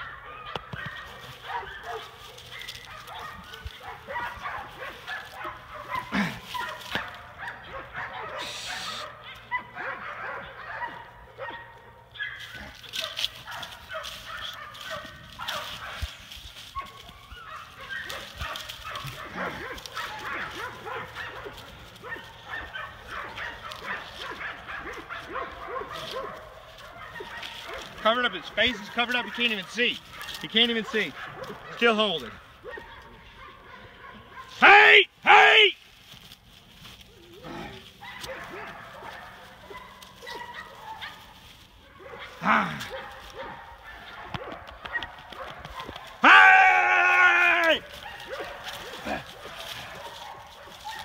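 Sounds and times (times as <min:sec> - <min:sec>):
puppy growling noises: 0:05.6 - 0:06.8, 0:37.1 - 0:38.8.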